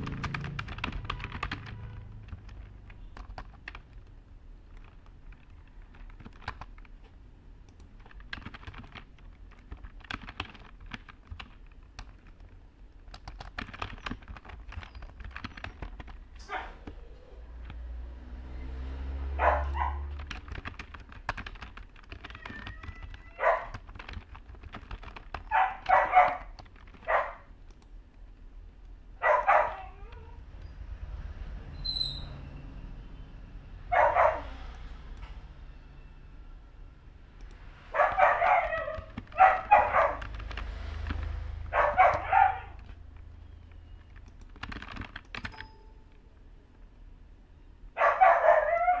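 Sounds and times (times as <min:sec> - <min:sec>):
typing on a keyboard: 0:00.0 - 0:17.0, 0:17.6 - 0:17.8, 0:19.6 - 0:30.3, 0:37.4 - 0:46.2
dog barking: 0:16.4 - 0:16.8, 0:19.3 - 0:20.2, 0:23.3 - 0:23.8, 0:25.5 - 0:27.5, 0:29.2 - 0:30.1, 0:33.9 - 0:34.6, 0:37.9 - 0:40.3, 0:41.7 - 0:42.9, 0:48.0 - 0:49.0.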